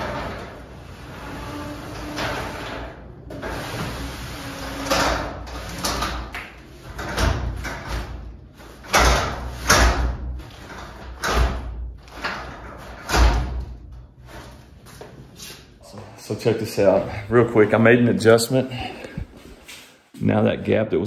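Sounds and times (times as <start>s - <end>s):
rollers and panels rattling: 0.0s - 15.4s
garage door knocks and thumps: 1.9s - 14.0s.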